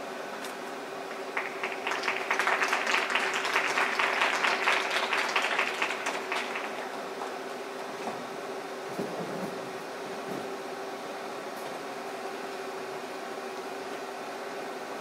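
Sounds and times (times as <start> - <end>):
steady hum: 0.0 - 15.0
spectators applauding: 1.1 - 7.2.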